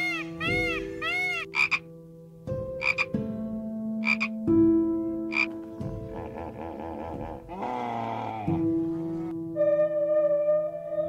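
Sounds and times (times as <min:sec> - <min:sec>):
beluga whale calls: 0:00.0 - 0:01.8, 0:06.1 - 0:11.0.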